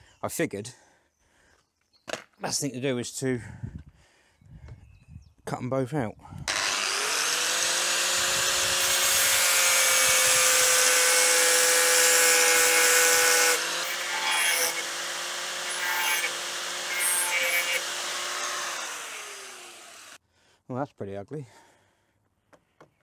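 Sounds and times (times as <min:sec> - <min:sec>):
angle grinder cutting steel: 0:06.5 - 0:20.2.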